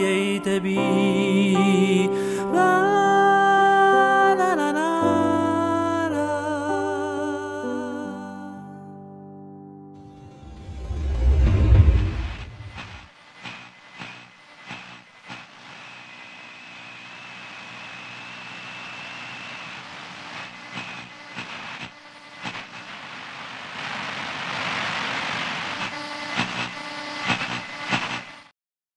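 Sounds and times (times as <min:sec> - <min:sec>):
tv static hiss: 0:12.4 - 0:28.5
faint high whistle: 0:15.9 - 0:19.8.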